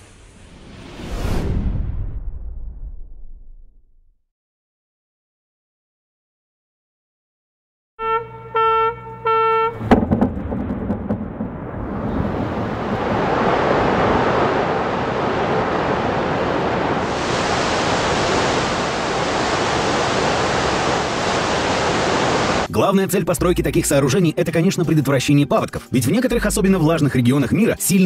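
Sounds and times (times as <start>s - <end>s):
explosive blast: 9.8s - 13.7s
rushing floodwater: 12.2s - 22.7s.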